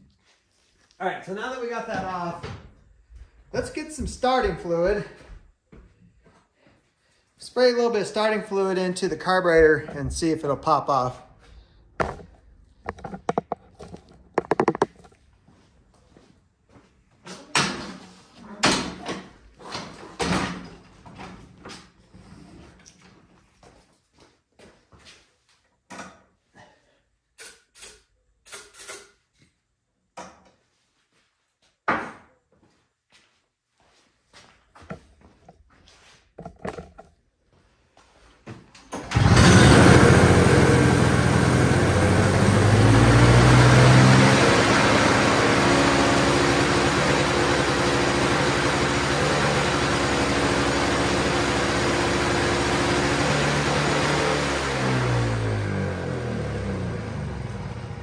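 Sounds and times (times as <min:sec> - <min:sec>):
snowblower engine running: 0:39.1 - 0:58.0.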